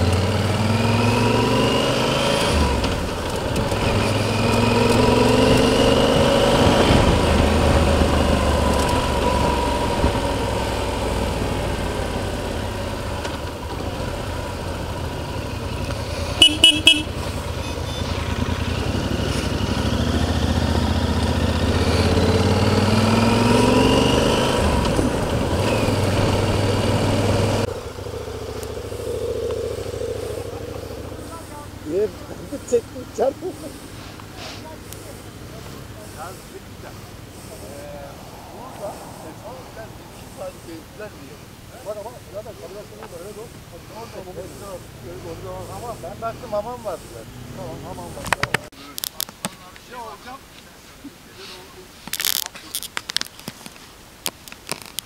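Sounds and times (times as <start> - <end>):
motorcycle engine accelerating: 0.0 - 48.7
horn toots: 16.3 - 18.4.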